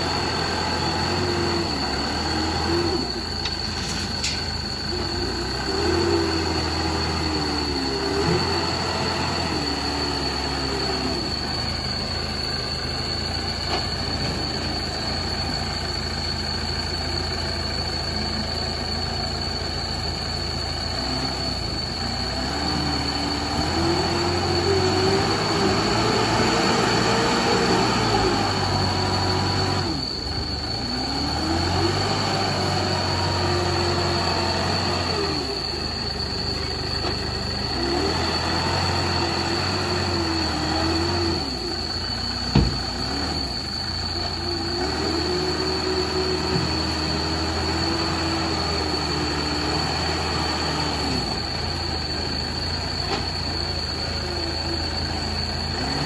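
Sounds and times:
high whine: 0.0 - 55.8
diesel engine revving: 0.0 - 56.0.

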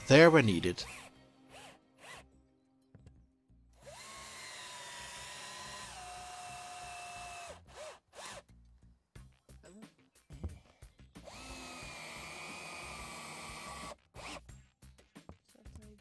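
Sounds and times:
cordless drill whining: 0.8 - 2.3, 3.8 - 8.4, 11.2 - 14.5
drill trigger blips: 3.8 - 8.4, 11.2 - 14.4.

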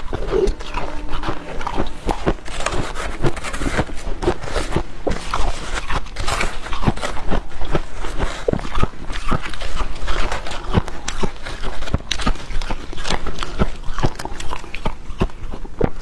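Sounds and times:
metal spoon scraping plastic bowl: 0.0 - 8.5
frost being chewed: 0.0 - 16.0.

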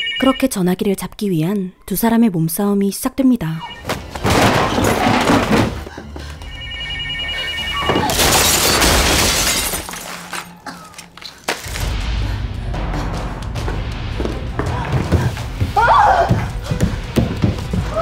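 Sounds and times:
telephone bell ringing: 0.0 - 0.6, 3.6 - 3.9, 6.4 - 8.1
crash of things breaking: 3.9 - 5.8, 7.8 - 10.5
low tense music: 9.8 - 18.0.

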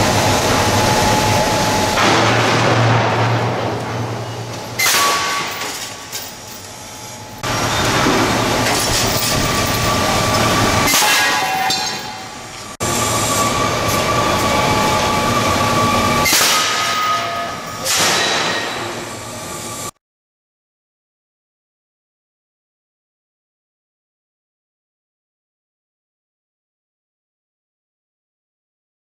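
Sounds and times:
air hammer hammering metal: 1.8 - 12.4, 16.1 - 19.1
high ringing tones: 16.8 - 17.8.

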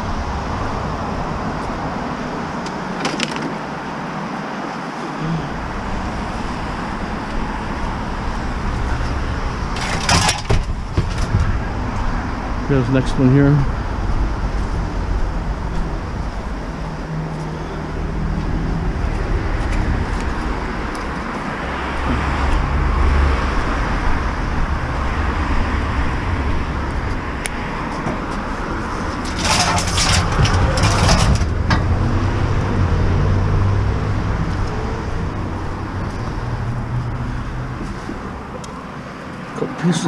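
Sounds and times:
road traffic rumble: 0.0 - 40.0
clattering: 9.7 - 11.7, 29.0 - 32.0.

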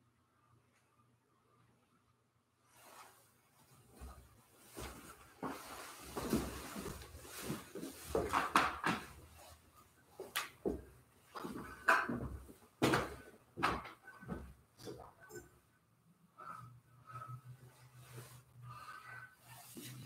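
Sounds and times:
cloth rustling: 2.7 - 13.3, 16.4 - 20.0
scrapes: 16.4 - 20.0.

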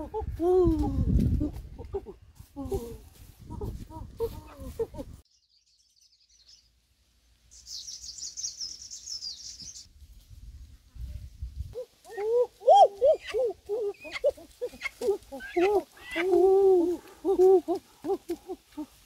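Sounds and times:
small bird chirping and warbling: 7.5 - 9.9.

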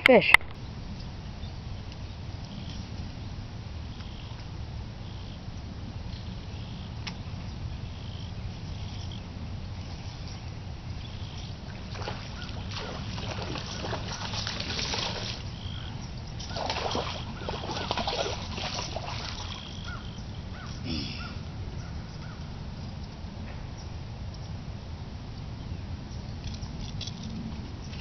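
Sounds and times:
birds chirping: 0.1 - 24.6
fish splashing in water: 11.6 - 20.1.

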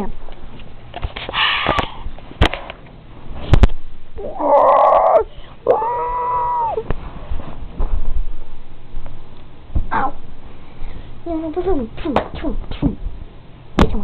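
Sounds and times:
child growling: 4.2 - 6.8
child squealing: 4.2 - 6.8.

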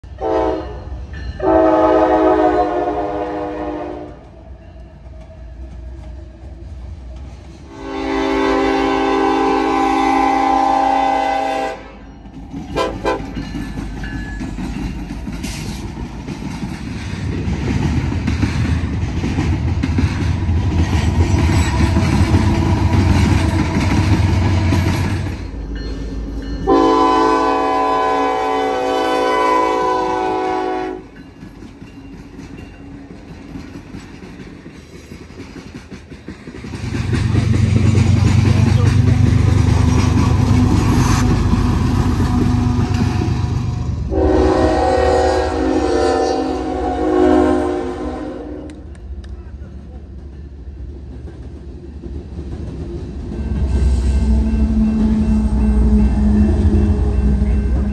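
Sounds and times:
diesel locomotive rumbling: 0.0 - 57.9
diesel locomotive horn blasts: 0.1 - 4.3, 7.7 - 12.1, 12.8 - 13.4, 26.6 - 31.1, 44.0 - 48.9, 53.8 - 57.9
freight cars rolling on rails: 11.3 - 26.8, 27.6 - 45.8, 48.7 - 57.9.

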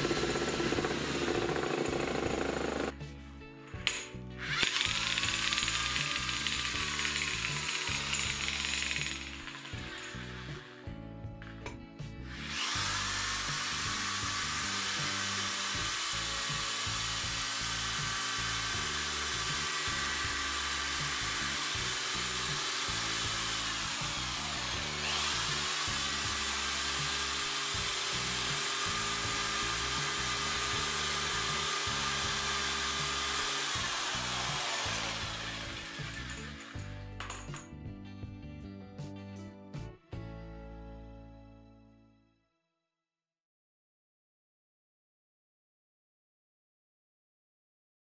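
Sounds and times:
electric drill whine: 0.0 - 2.9, 4.4 - 10.8, 12.3 - 36.9.

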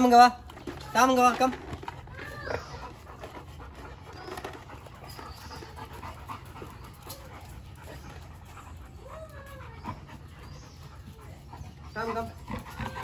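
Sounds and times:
dogs panting: 0.0 - 13.0
dog whining: 2.0 - 6.1.

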